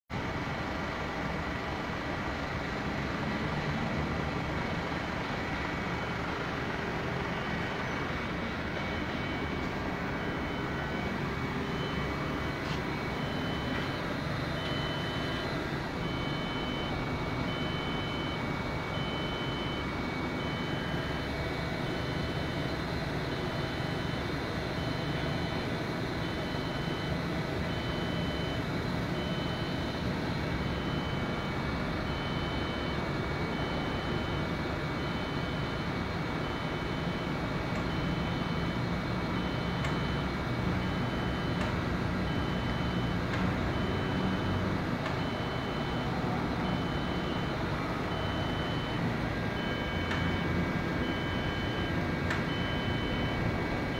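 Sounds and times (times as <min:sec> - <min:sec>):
machining center humming: 0:04.4 - 0:53.9
high pulsing beep: 0:08.7 - 0:30.0, 0:42.3 - 0:53.5.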